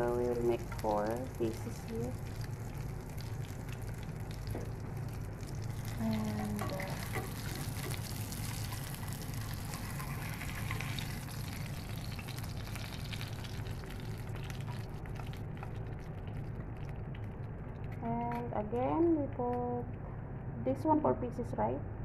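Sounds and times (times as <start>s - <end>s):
fish sizzling in a frying pan: 0.0s - 16.6s
steady low hum: 0.0s - 22.0s.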